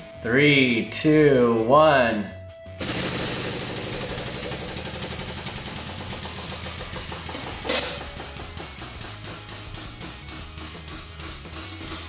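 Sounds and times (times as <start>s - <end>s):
hydraulic press humming: 2.8s - 9.8s
rhythmic knocking pulse: 2.8s - 12.0s.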